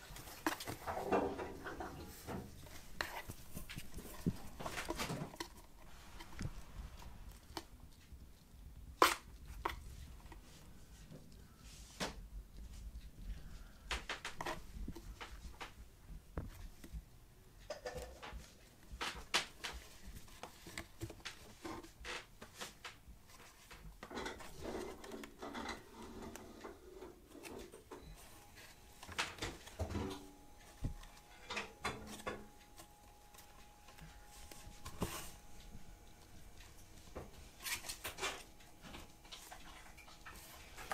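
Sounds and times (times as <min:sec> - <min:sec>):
kittens clawing cardboard: 0:01.8 - 0:11.5.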